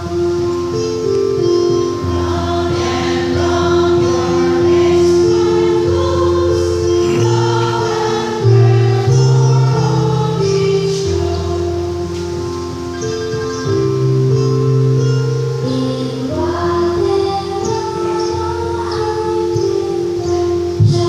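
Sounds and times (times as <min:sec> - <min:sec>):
church choir singing a hymn: 0:00.0 - 0:14.4, 0:15.6 - 0:21.0
sustained accompaniment chords: 0:00.0 - 0:21.0.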